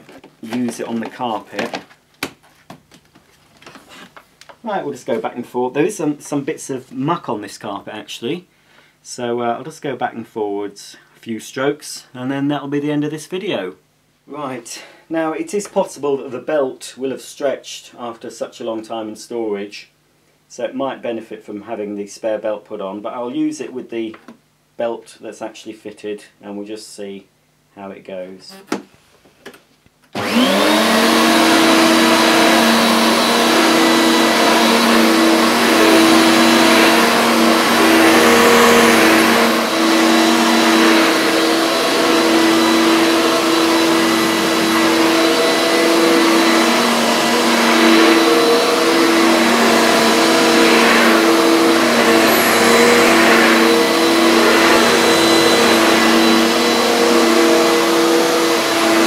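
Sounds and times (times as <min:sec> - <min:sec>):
vacuum cleaner humming: 0:00.0 - 0:01.8, 0:30.2 - 0:59.0.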